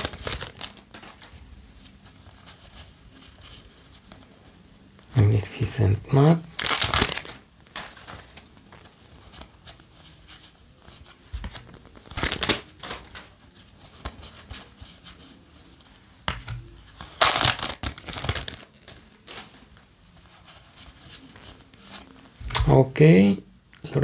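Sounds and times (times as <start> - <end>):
foil wrapper crinkling and tearing: 0.0 - 1.3, 6.5 - 9.6, 11.4 - 13.3, 16.6 - 19.6
paper cards rustling: 0.0 - 22.7.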